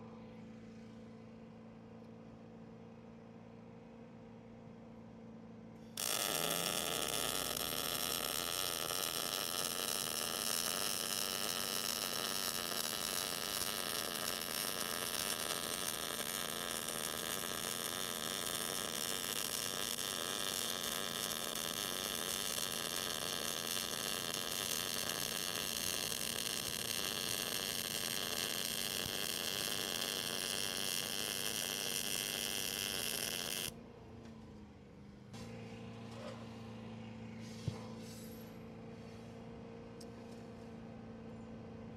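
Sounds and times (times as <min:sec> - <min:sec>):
welding arc crackling: 0:06.0 - 0:33.7.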